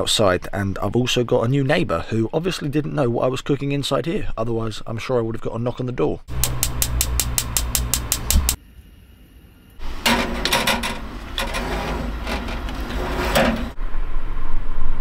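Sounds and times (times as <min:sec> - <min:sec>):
gas oven igniter clicking: 0:06.3 - 0:08.6
baking tray clattering: 0:10.0 - 0:13.8.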